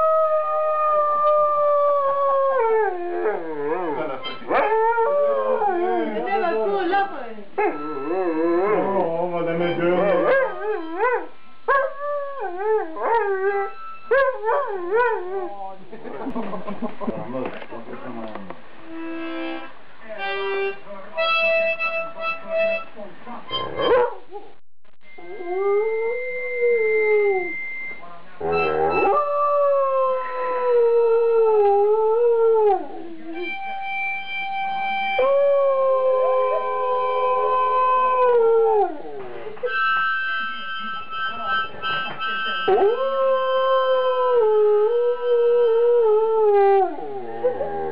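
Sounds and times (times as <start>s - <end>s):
dog howling: 0.0s - 6.9s, 7.6s - 15.6s, 35.2s - 39.8s
harmonica notes: 3.7s - 4.8s, 6.2s - 11.6s, 13.6s - 14.2s, 18.8s - 24.0s, 27.4s - 29.4s, 33.4s - 35.4s, 39.6s - 43.6s.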